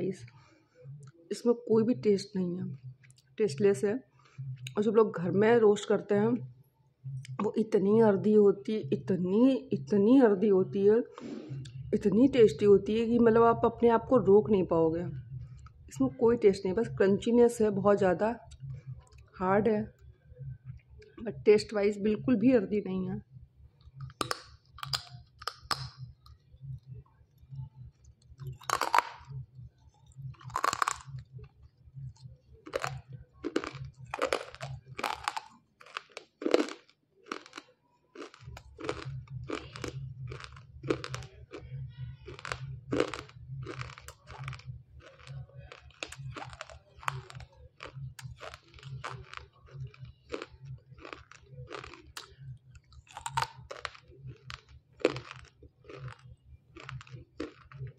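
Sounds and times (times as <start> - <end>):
chewing hard crunchy clay: 23.8 - 57.9.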